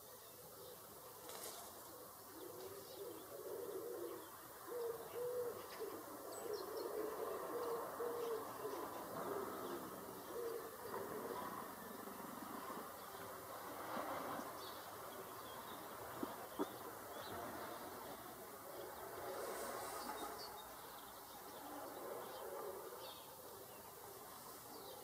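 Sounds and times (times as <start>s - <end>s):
dove cooing: 0.0s - 13.9s, 21.5s - 25.0s
small birds chirping: 0.0s - 25.0s.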